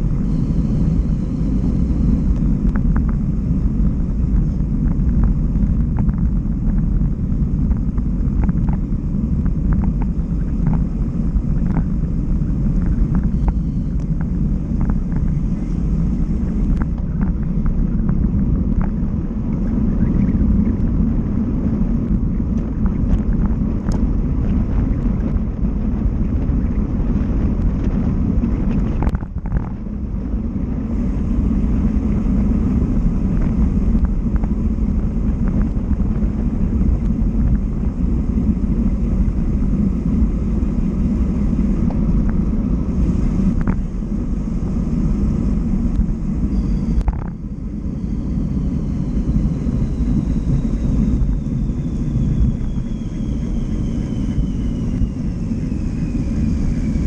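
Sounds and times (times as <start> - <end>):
bike tyre noise on road: 0.0 - 57.0
wind buffeting microphone: 0.0 - 57.0.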